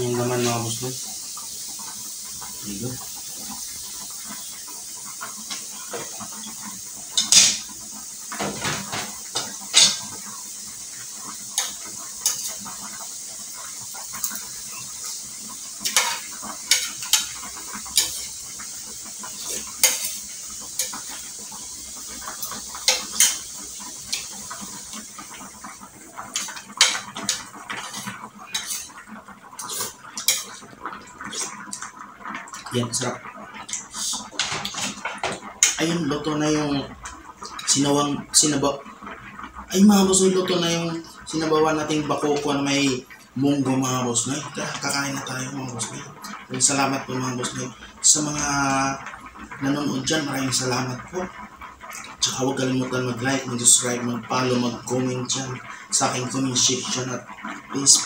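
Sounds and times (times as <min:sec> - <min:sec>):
steady hiss: 0:00.0 - 0:38.9, 0:39.6 - 0:58.0
metal utensils clinking on wok: 0:07.2 - 0:07.6.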